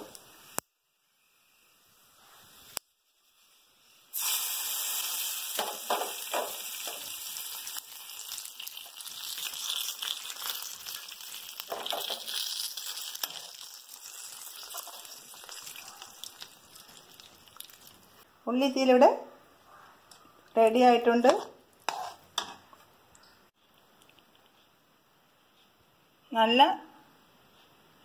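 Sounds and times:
oil tempering sizzling in curry: 0:00.0 - 0:18.3, 0:20.9 - 0:22.9.

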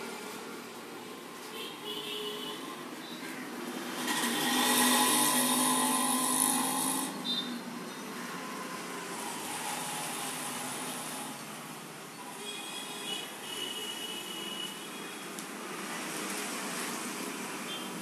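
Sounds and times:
potter's wheel whirring: 0:03.9 - 0:07.2.

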